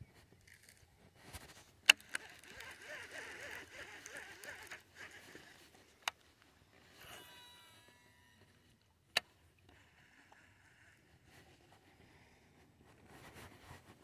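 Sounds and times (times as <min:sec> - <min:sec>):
sharp reel click: 0:01.9 - 0:05.4
fishing reel whirring: 0:01.9 - 0:05.7, 0:06.9 - 0:08.5.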